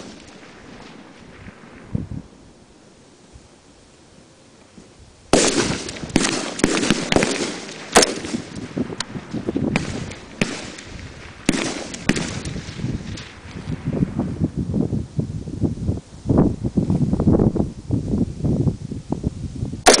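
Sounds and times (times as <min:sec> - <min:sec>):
rifle shots with echo: 0:00.0 - 0:01.8, 0:05.3 - 0:13.5.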